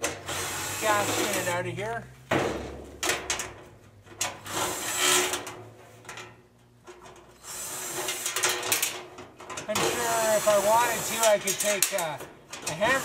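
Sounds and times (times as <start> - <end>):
tool scraping sheet metal: 0.1 - 1.6, 4.3 - 5.6, 7.4 - 9.0, 9.6 - 13.0.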